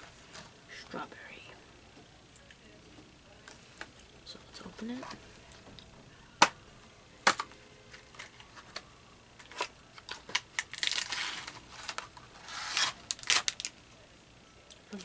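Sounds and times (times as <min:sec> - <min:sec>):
cardboard tearing and plastic crinkling: 0:09.4 - 0:13.7.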